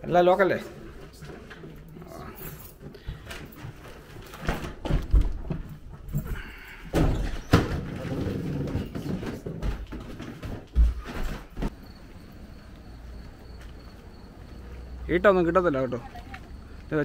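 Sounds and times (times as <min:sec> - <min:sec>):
footsteps on carpeted stairs: 0:09.2 - 0:11.8.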